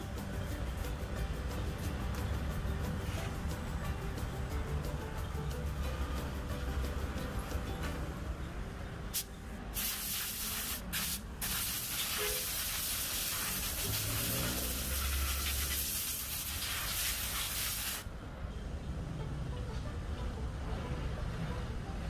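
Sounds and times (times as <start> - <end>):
loud steady hiss: 9.1 - 18.1.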